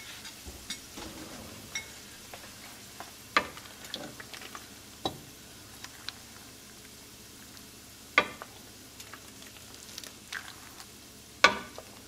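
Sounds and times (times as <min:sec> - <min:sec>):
faint frying sizzle: 0:00.0 - 0:12.0
ladle clinking against pot: 0:00.3 - 0:02.1.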